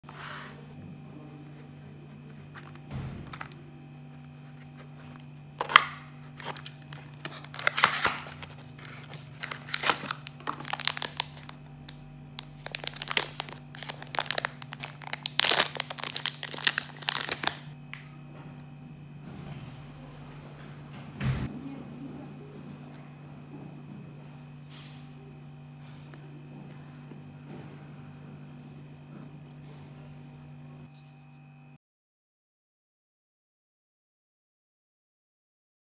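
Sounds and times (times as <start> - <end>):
cardboard box opening: 4.4 - 11.5, 12.6 - 17.6
plastic pouch crinkling and tearing: 5.6 - 17.8.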